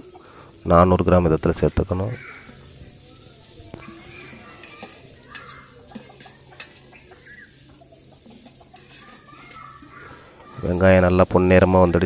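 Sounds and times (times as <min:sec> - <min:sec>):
onions sizzling in hot oil: 0:00.0 - 0:12.0
metal ladle scraping a pot: 0:02.4 - 0:10.6.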